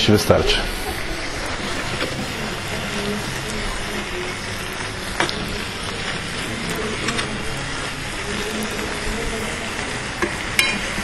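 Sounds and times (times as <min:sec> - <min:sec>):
food sizzling in a pan: 0:00.0 - 0:11.0
metal spoon clicking on pan: 0:10.2 - 0:10.8.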